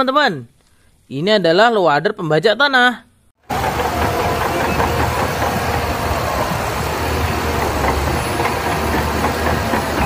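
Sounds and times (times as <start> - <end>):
bulldozer diesel engine running: 3.4 - 10.0
steel tracks rattling: 3.4 - 10.0.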